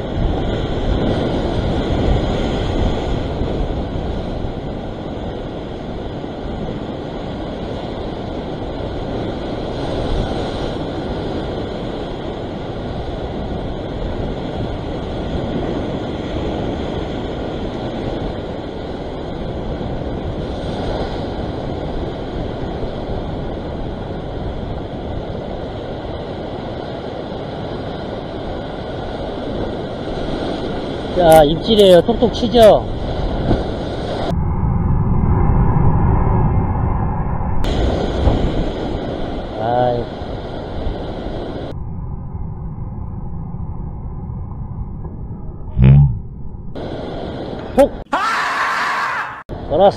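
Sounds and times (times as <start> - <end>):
surf washing over rocks: 0.0 - 34.3, 37.6 - 41.7
wind buffeting microphone: 0.0 - 48.1.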